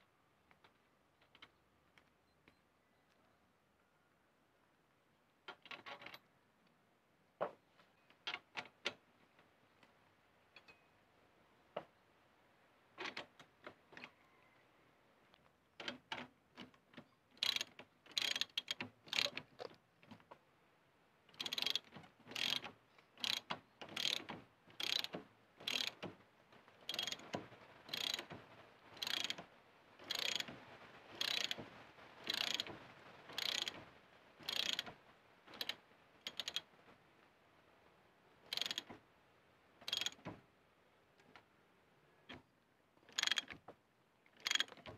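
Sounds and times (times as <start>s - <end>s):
ratchet wrench clicking: 17.4s - 19.4s, 21.3s - 24.2s, 24.8s - 26.0s, 26.9s - 27.2s, 27.9s - 28.3s, 29.0s - 29.4s, 30.1s - 30.5s, 31.2s - 31.6s, 32.3s - 32.7s, 33.4s - 33.8s, 34.4s - 34.9s, 35.6s - 36.6s, 38.5s - 38.9s, 39.9s - 40.2s, 43.1s - 43.5s, 44.4s - 44.7s.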